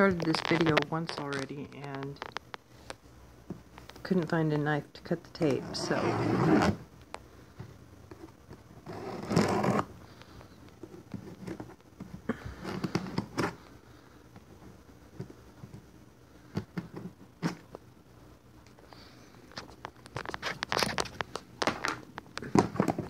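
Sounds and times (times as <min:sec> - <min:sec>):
cardboard box scraping: 0:05.6 - 0:06.8, 0:08.8 - 0:09.9.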